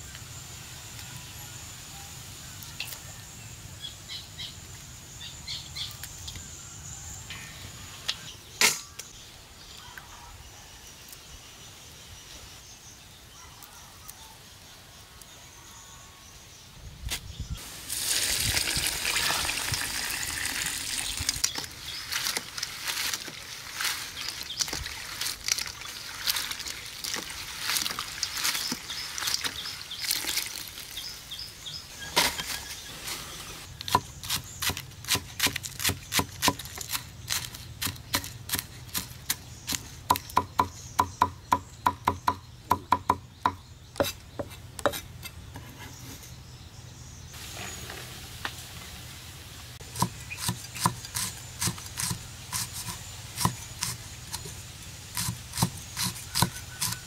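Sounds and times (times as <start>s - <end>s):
knife chopping on wooden board: 39.7s - 45.0s.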